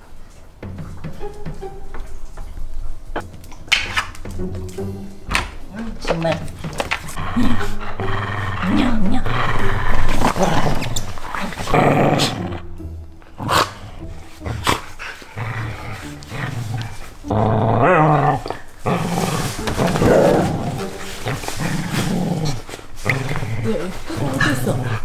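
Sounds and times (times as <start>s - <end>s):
music: 0.0s - 25.0s
dogs growling in play: 6.6s - 25.0s.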